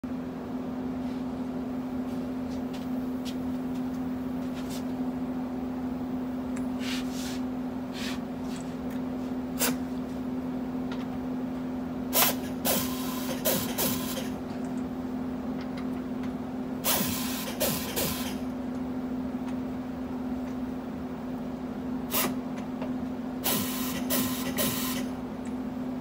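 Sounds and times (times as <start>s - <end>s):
steady low hum: 0.0s - 26.0s
air torque gun bursts: 23.4s - 25.1s.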